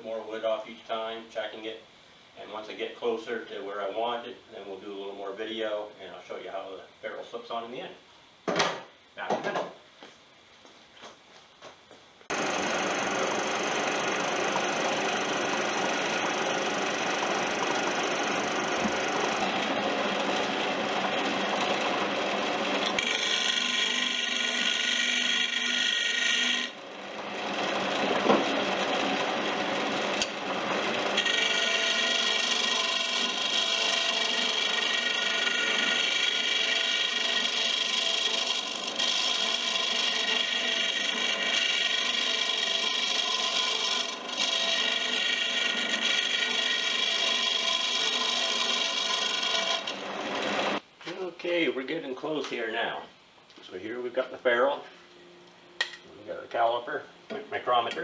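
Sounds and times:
turning tool scraping wood: 12.3s - 50.8s
wood lathe whining: 12.3s - 50.8s.

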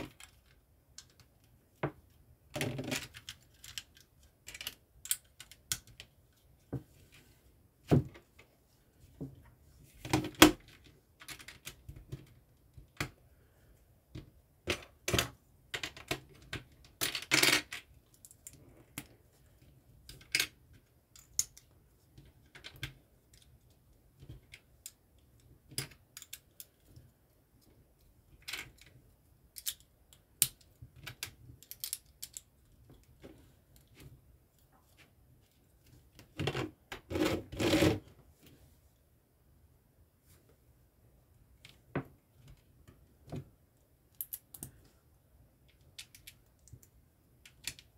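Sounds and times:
plastic pieces clicking and clattering: 2.5s - 6.1s, 14.7s - 19.1s, 24.2s - 27.0s, 29.5s - 33.0s.

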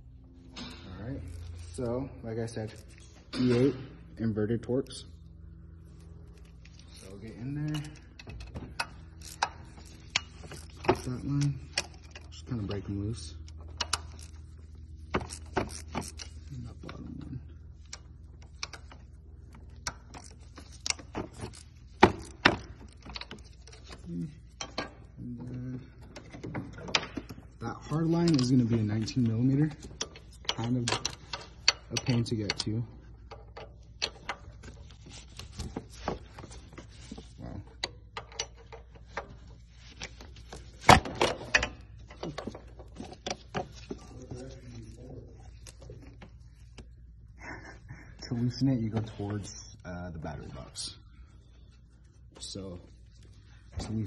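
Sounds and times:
wrench clicking on metal: 7.6s - 12.3s.

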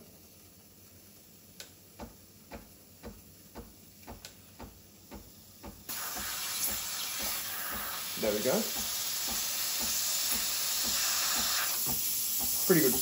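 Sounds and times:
steam wand hissing: 5.9s - 13.0s.

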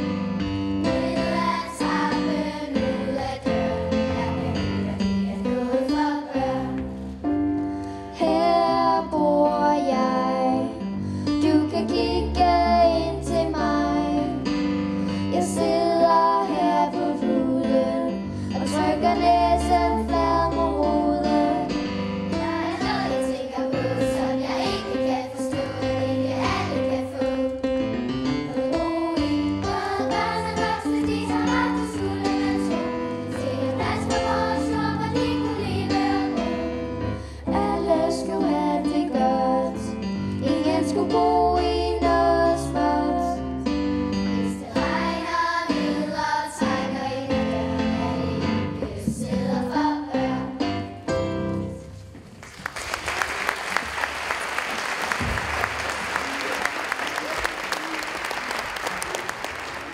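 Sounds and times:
keyboard accompaniment: 0.0s - 52.4s
children's choir singing: 0.8s - 7.2s, 8.1s - 10.8s, 11.4s - 14.5s, 15.3s - 27.8s, 28.4s - 43.4s, 44.4s - 50.8s
audience applause: 52.4s - 59.9s.

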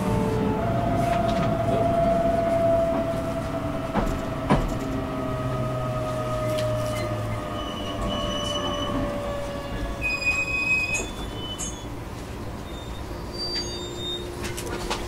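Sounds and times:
high-pitched squeals: 6.6s - 12.0s.

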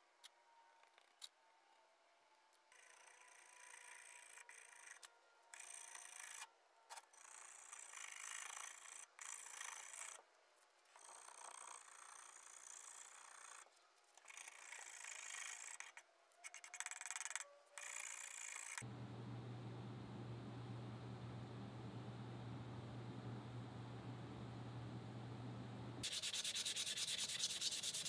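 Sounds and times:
steady low hum: 18.8s - 26.4s
scraper rasping on wood: 26.0s - 28.0s.

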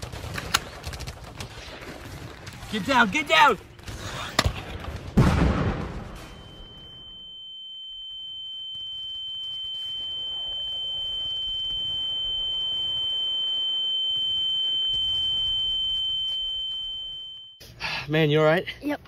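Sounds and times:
high-pitched ringing tone: 6.2s - 17.6s.

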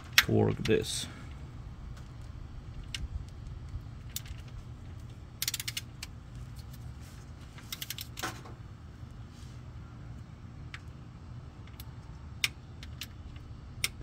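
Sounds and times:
low steady rumble: 0.0s - 14.0s
torque wrench ratchet clicking: 5.4s - 5.9s.

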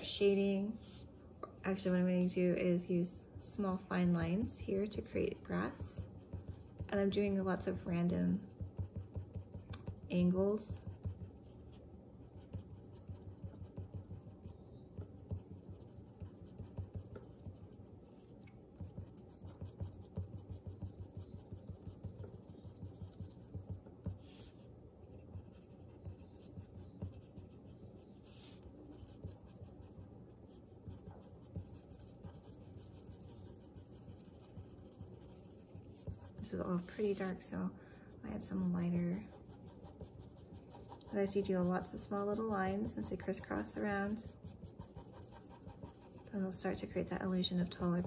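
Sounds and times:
pencil scratching on paper: 4.1s - 37.5s, 38.4s - 48.0s.

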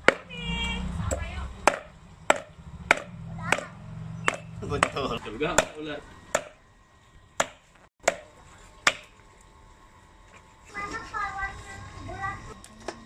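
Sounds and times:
knife chopping on wooden board: 1.6s - 6.6s, 7.4s - 9.1s.

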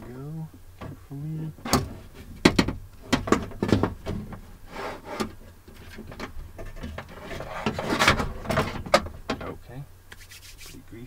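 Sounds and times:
clicks and knocks: 1.6s - 4.4s
rubbing against metal: 4.6s - 9.0s, 10.1s - 10.8s.

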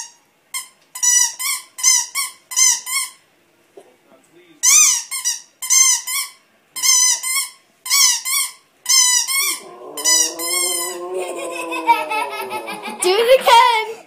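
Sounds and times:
dog howling: 9.4s - 13.8s.

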